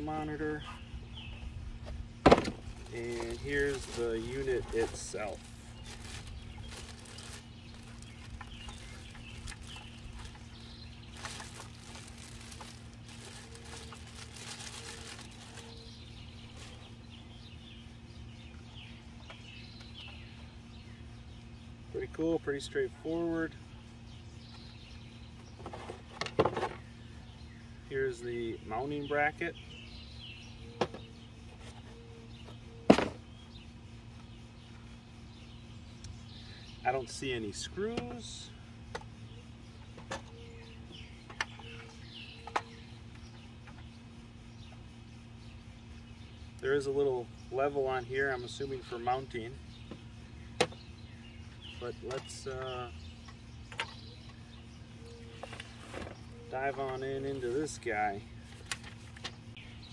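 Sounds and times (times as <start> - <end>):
birds chirping: 0.0 - 59.9
steady low hum: 0.0 - 59.9
plastic bag crinkling: 2.8 - 15.8.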